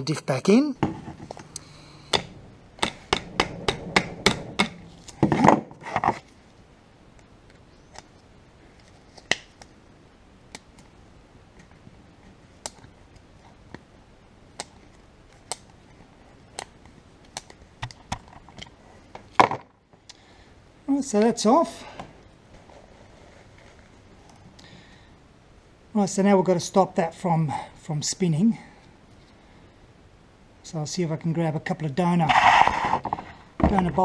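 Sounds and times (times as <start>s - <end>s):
loud metal clack: 2.2s - 5.6s.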